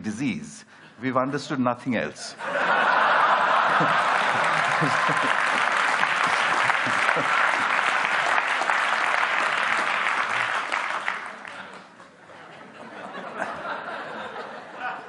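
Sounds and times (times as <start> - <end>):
audience laughter: 2.4 - 8.4, 11.3 - 15.0
large audience applauding: 2.8 - 12.0.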